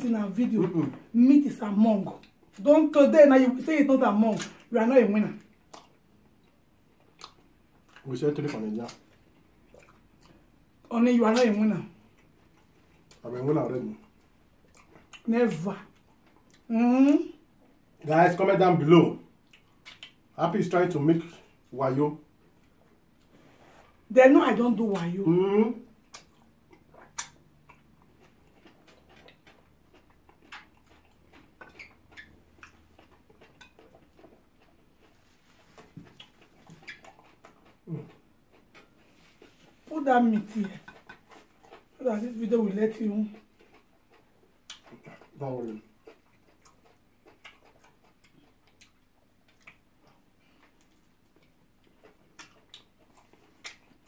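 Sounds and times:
people chewing food: 0:00.0 - 0:54.0
mouth and finger sounds of eating: 0:04.1 - 0:18.2, 0:18.8 - 0:24.1, 0:24.7 - 0:54.0.

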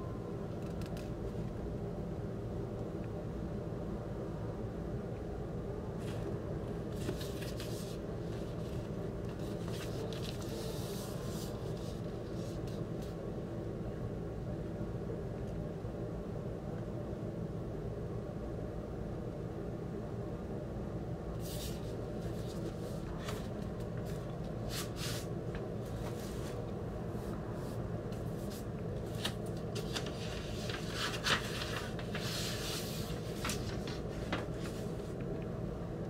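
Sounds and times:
low steady hum: 0:00.0 - 0:36.0
paper sleeves rustling: 0:06.0 - 0:13.2, 0:21.4 - 0:35.2.

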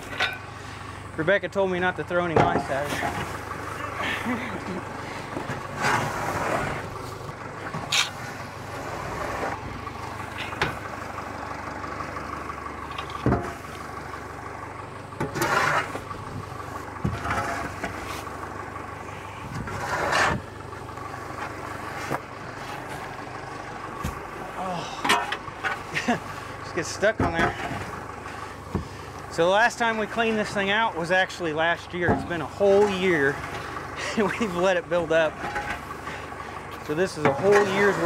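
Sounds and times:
tractor engine idling: 0:00.0 - 0:38.0
pitchfork scraping hay: 0:15.4 - 0:16.0, 0:17.2 - 0:18.4.

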